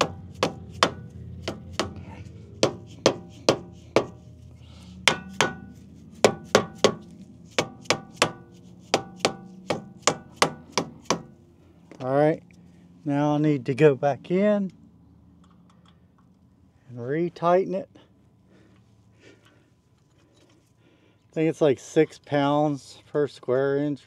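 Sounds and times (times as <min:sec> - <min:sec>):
mallet striking metal brake rotor: 0:00.0 - 0:04.2, 0:05.0 - 0:11.4.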